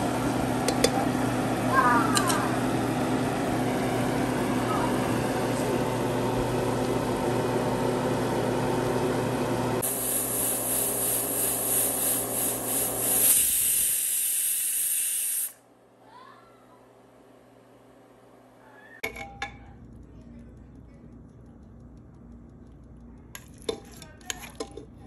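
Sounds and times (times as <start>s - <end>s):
low cooking hum: 0.0s - 25.0s
pressure cooker hissing steam: 9.8s - 15.6s.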